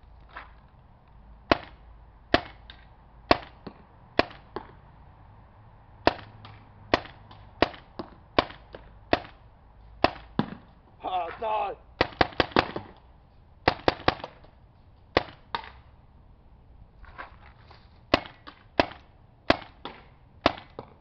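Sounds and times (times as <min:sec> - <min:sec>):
paintball marker shots: 0:01.5 - 0:04.7, 0:06.0 - 0:09.4, 0:10.0 - 0:10.7, 0:12.0 - 0:13.0, 0:13.6 - 0:15.8, 0:18.1 - 0:21.0.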